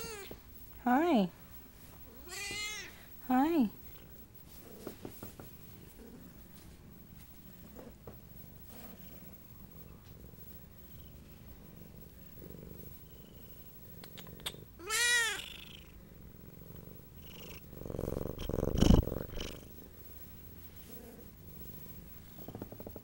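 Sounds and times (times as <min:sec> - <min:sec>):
cat meowing: 0:00.0 - 0:00.4, 0:02.2 - 0:03.0, 0:14.8 - 0:15.6
cat purring: 0:01.2 - 0:23.0
close-up rubbing noise: 0:03.8 - 0:11.4, 0:18.0 - 0:23.0.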